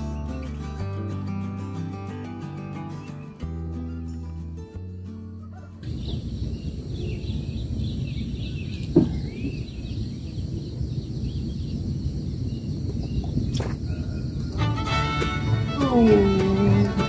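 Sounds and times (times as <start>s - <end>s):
faint bird chirps: 5.4s - 14.6s
wind rumbling on microphone: 5.8s - 14.6s.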